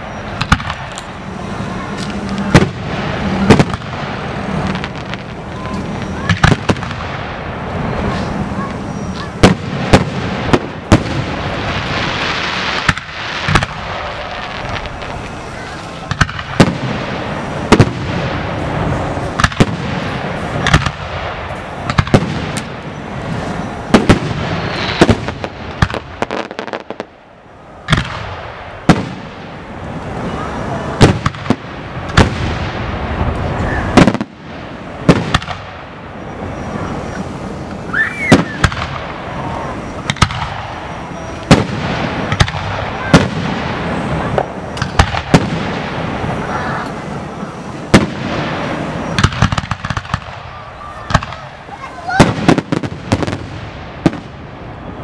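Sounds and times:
firework whistle: 0:00.0 - 0:06.9, 0:07.9 - 0:16.8, 0:21.6 - 0:25.6, 0:33.5 - 0:34.3, 0:36.0 - 0:45.4
crowd voices: 0:00.0 - 0:55.0.

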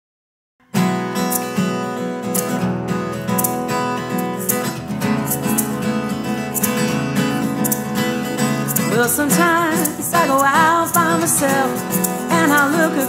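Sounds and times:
acoustic guitar strummed: 0:00.6 - 0:13.0.

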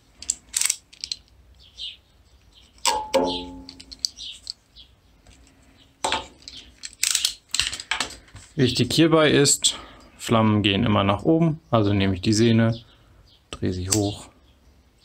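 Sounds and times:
utility knife clicks and knocks: 0:02.8 - 0:04.6.

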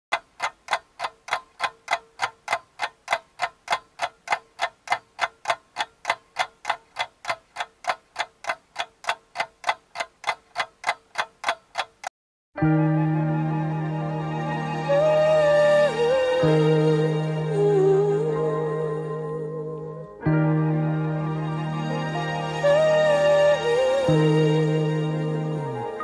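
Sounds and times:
clock ticking quickly: 0:00.1 - 0:12.1.

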